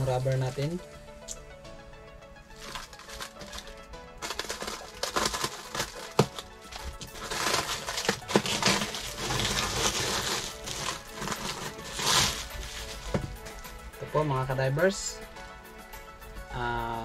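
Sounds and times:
plastic packaging crinkling: 0:02.5 - 0:13.6.

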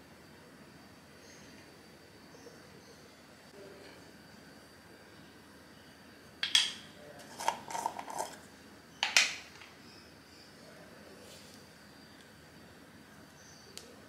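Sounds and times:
screw cap clicking and rattling: 0:07.4 - 0:08.4.

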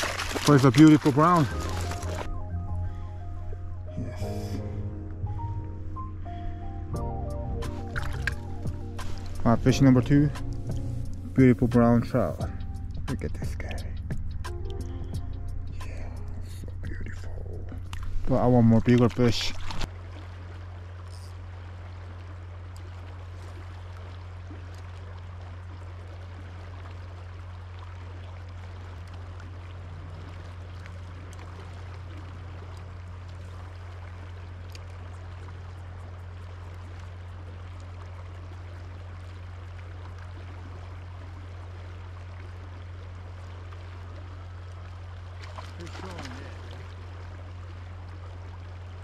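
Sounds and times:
river water rushing: 0:00.0 - 0:02.3, 0:38.0 - 0:49.0
low hum: 0:00.0 - 0:49.0.

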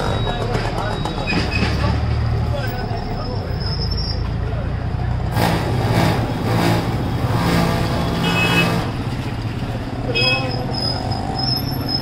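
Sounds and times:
voices: 0:00.0 - 0:05.4, 0:09.6 - 0:12.0
street traffic: 0:00.0 - 0:12.0.

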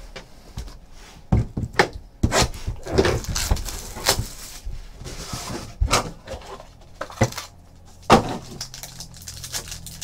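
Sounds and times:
cardboard boxes tapping and knocking: 0:00.6 - 0:04.4
packaging rustling: 0:02.8 - 0:04.7, 0:06.3 - 0:10.0.

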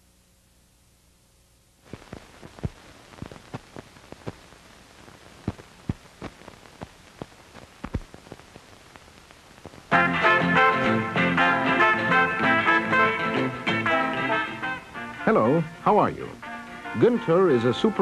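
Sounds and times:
film soundtrack hiss: 0:00.0 - 0:18.0
clicks and pops: 0:01.9 - 0:09.9.

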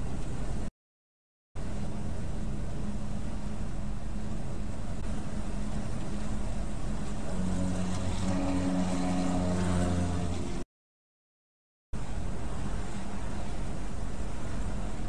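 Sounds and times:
low engine drone: 0:01.6 - 0:10.7
road and tyre noise: 0:01.6 - 0:10.7, 0:12.0 - 0:15.0.

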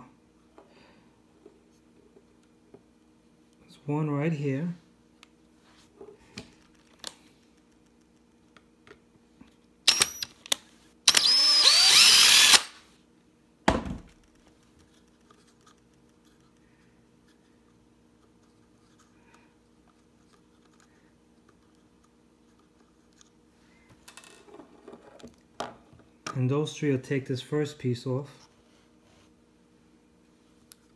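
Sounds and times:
faint steady hum: 0:00.0 - 0:30.9
power drill whining: 0:09.9 - 0:10.3, 0:11.1 - 0:12.8.

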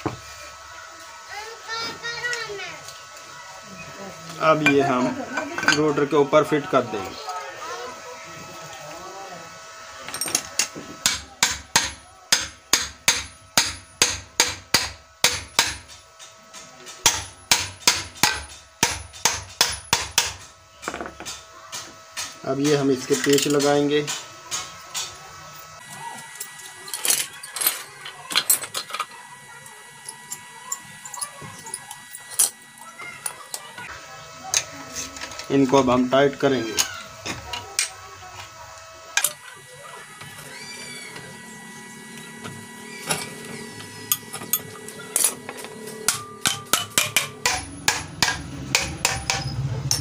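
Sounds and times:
hammer tapping metal: 0:10.6 - 0:22.8, 0:44.0 - 0:50.0.

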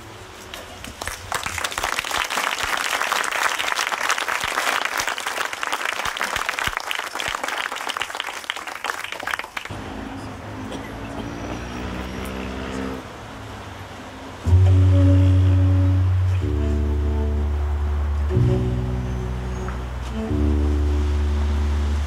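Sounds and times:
audience applauding: 0:00.8 - 0:09.7.

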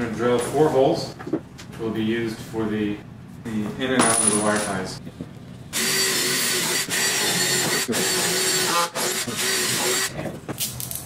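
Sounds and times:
cordless drill drilling: 0:05.8 - 0:10.1.

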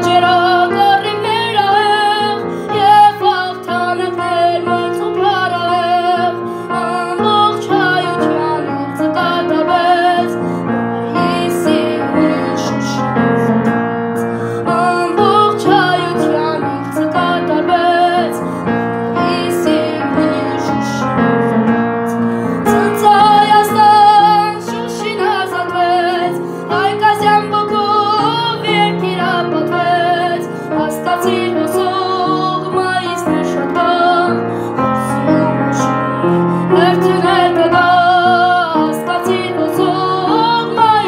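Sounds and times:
boy singing with vibrato: 0:00.0 - 0:10.2
piano: 0:00.0 - 0:41.0.

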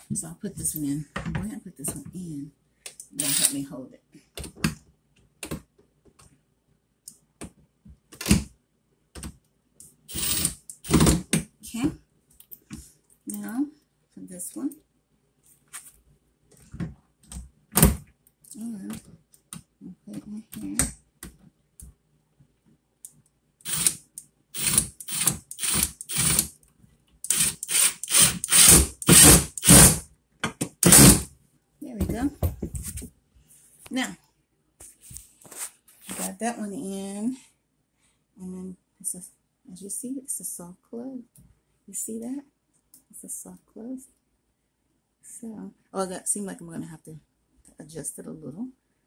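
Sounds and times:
cordless driver trigger bursts: 0:03.2 - 0:03.5, 0:10.1 - 0:11.0, 0:23.7 - 0:24.0, 0:24.6 - 0:26.4, 0:27.3 - 0:30.0.

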